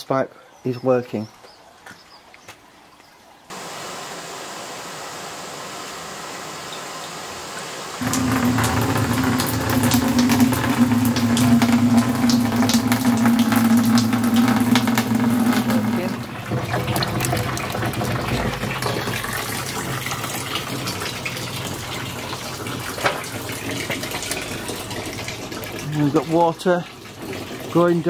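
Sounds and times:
water running through downpipe: 7.2 - 28.0
water splashing into plastic butt: 8.0 - 28.0.

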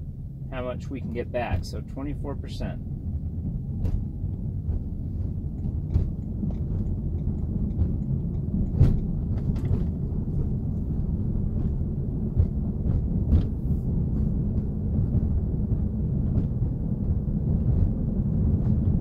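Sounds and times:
road and tyre rumble in car cabin: 0.0 - 19.0
sharp knocks or clicks: 3.8 - 10.5.

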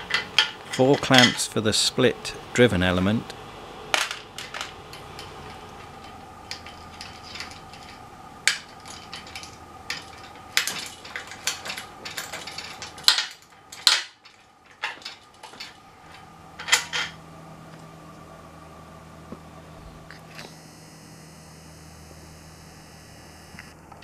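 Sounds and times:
metallic clicks and clinks: 4.0 - 17.2.

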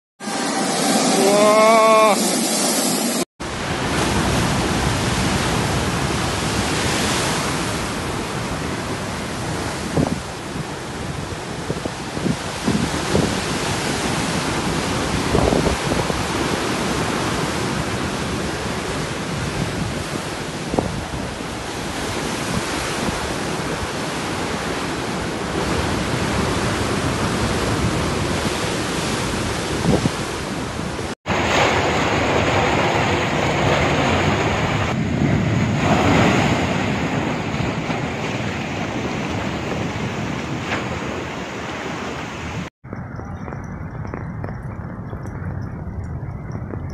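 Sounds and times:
surf breaking heavily: 0.2 - 42.7
seawater surging: 0.2 - 46.9
wind on microphone: 3.4 - 46.9.

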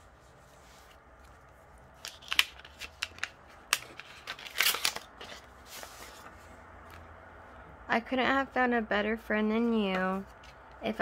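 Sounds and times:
paper envelope crackling: 2.0 - 6.4.

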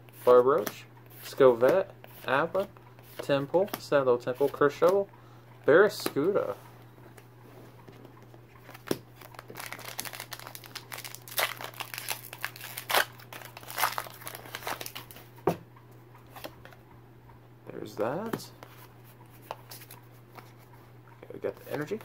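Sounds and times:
foil wrapper crinkling and tearing: 9.2 - 15.2.

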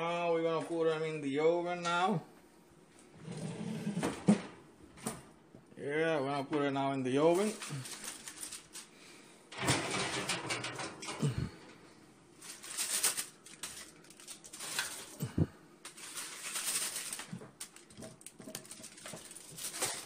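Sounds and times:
foil rustling: 7.3 - 10.6, 12.3 - 20.0
pans knocking: 9.5 - 11.7, 17.9 - 19.4.

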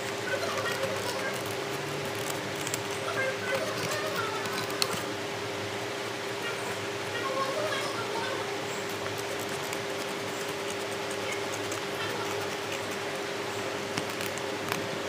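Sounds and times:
scissors snipping paper: 0.0 - 5.1, 8.8 - 13.1, 13.9 - 14.9
steady background hum: 0.0 - 15.0.

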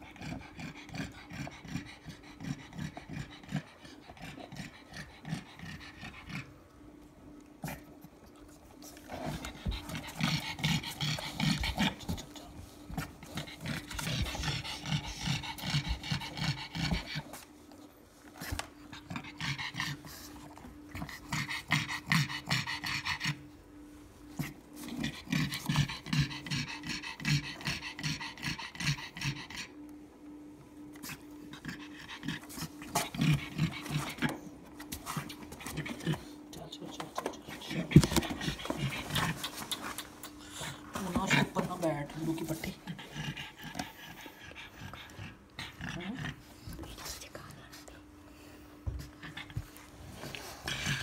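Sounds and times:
dog panting hard: 0.0 - 6.5, 8.8 - 17.6, 18.3 - 23.4, 24.4 - 29.8, 37.5 - 51.0.

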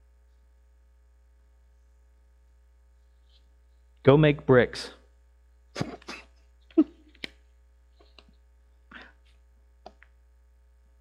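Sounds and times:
throat clearing sound: 5.8 - 7.1.

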